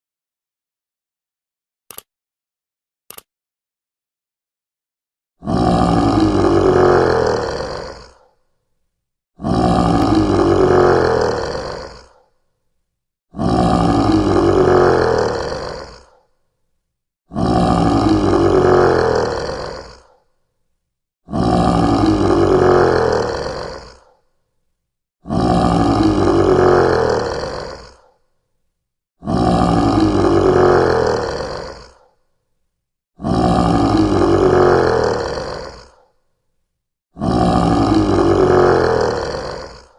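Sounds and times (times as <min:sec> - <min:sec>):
lion roaring: 0:05.4 - 0:08.3, 0:09.4 - 0:12.3, 0:13.3 - 0:16.2, 0:17.3 - 0:20.2, 0:21.2 - 0:24.2, 0:25.2 - 0:28.1, 0:29.2 - 0:32.1, 0:33.2 - 0:36.1, 0:37.2 - 0:39.9.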